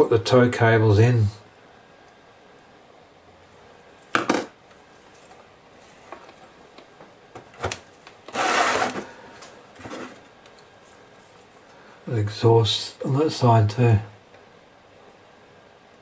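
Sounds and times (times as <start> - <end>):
scraping rustle: 8.3 - 11.5.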